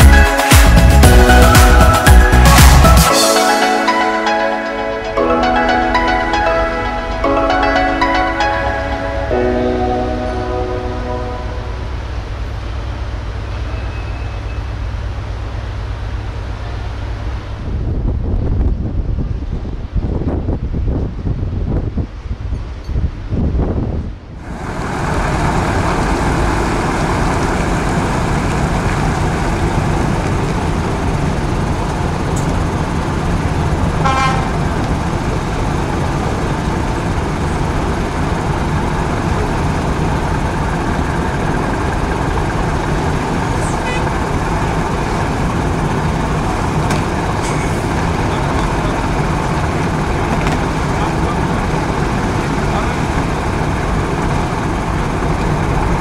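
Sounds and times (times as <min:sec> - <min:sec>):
lorry diesel engines rumbling: 0:00.0 - 0:56.0
horn toot: 0:34.0 - 0:34.6.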